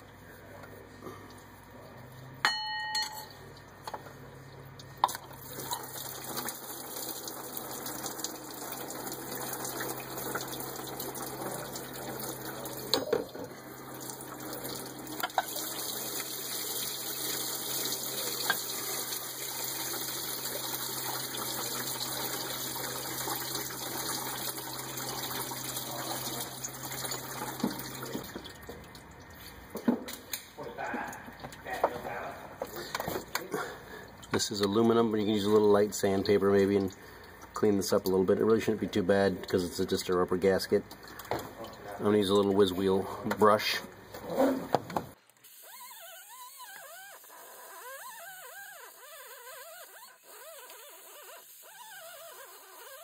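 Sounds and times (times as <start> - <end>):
coolant pouring into bucket: 5.0 - 29.4, 33.8 - 43.7.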